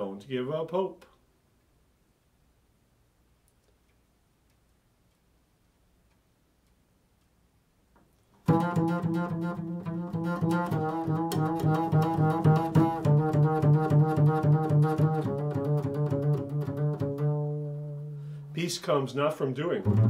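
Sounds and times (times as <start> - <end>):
double bass plucked notes: 8.4 - 20.0.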